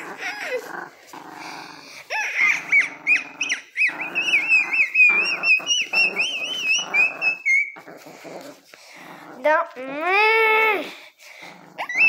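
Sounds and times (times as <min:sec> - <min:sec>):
small dog growling: 0:00.0 - 0:10.4, 0:11.1 - 0:12.0
high wavering dog whine: 0:02.1 - 0:08.7, 0:11.8 - 0:12.0.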